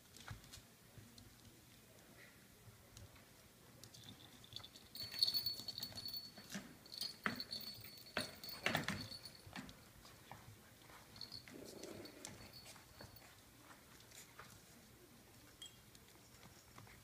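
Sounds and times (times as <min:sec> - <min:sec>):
puppies scuffling and pattering: 0:02.9 - 0:17.0.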